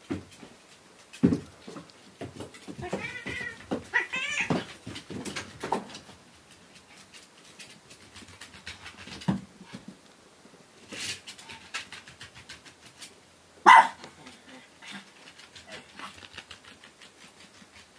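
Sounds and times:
thumps and scuffling: 0:00.0 - 0:06.2
cat meowing: 0:02.8 - 0:04.6.

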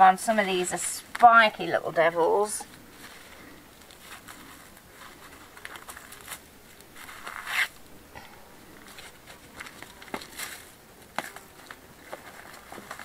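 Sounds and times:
weeds ripping: 0:02.9 - 0:07.8.

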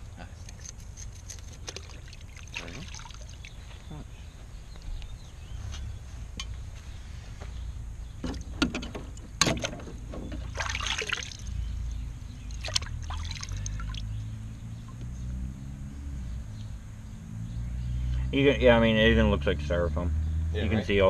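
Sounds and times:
low steady rumble: 0:00.0 - 0:21.0
water sloshing in plastic tub: 0:01.6 - 0:03.6, 0:08.2 - 0:11.6, 0:12.4 - 0:14.1.

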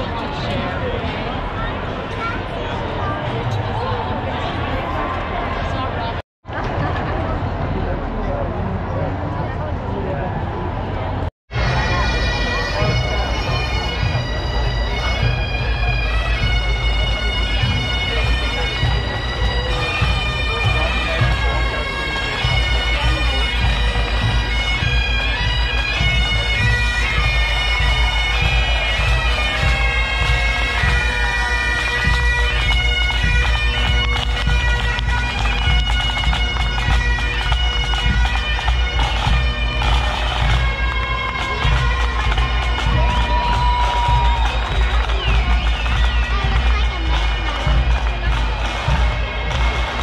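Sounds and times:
bagpipes playing: 0:11.5 - 0:50.0.

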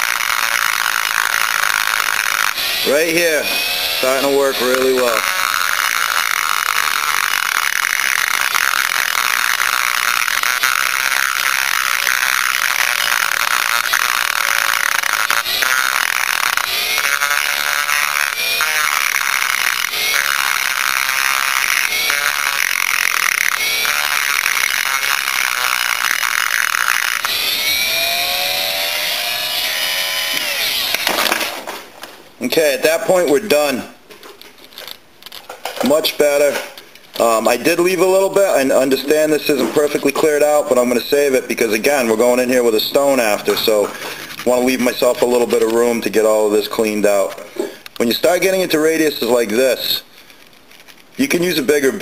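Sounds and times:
rotary tool grinding metal: 0:00.0 - 0:31.6.

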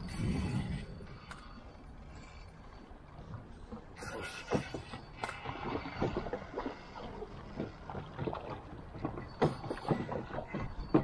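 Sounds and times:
knocks and thumps on raft: 0:04.1 - 0:11.0.

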